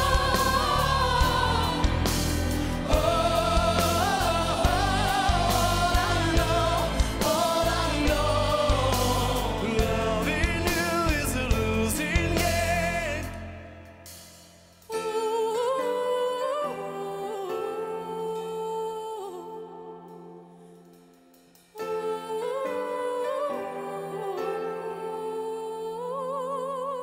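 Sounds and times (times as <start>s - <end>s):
steady drum beat: 0.0s - 13.4s
person singing pop ballad: 0.0s - 14.0s, 14.9s - 20.8s, 21.7s - 27.0s
backing choir: 0.0s - 14.2s.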